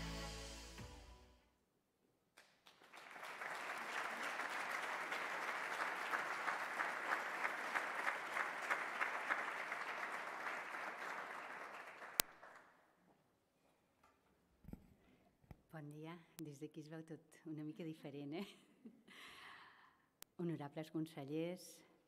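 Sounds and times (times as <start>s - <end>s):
audience applauding: 2.4s - 12.7s.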